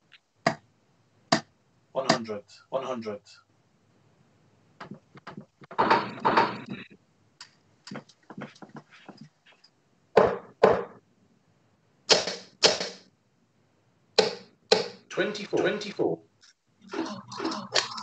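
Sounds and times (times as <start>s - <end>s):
darts thudding into dartboard: 14.2s - 15.0s.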